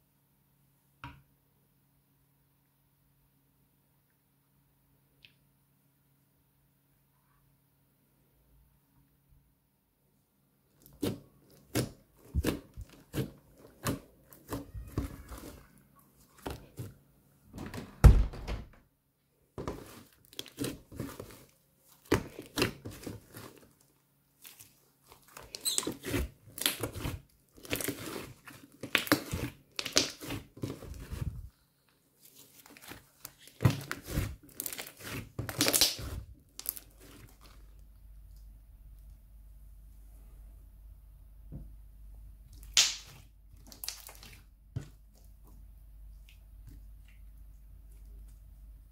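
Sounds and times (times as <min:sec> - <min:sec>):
slime squelching and popping: 0:10.8 - 0:17.0, 0:19.6 - 0:31.5, 0:32.2 - 0:38.5, 0:42.4 - 0:48.4.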